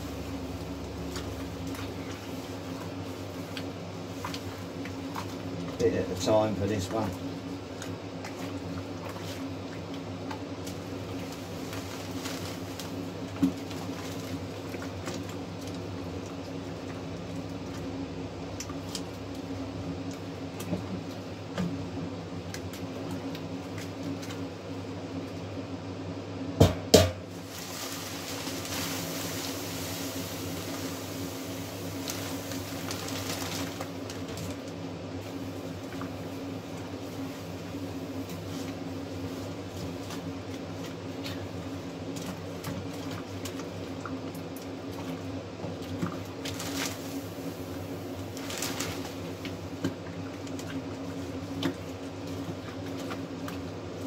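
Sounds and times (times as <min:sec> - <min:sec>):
steady machine hum: 0:00.0 - 0:54.0
malt pouring from bag: 0:10.8 - 0:15.4, 0:27.3 - 0:34.7, 0:46.4 - 0:49.7.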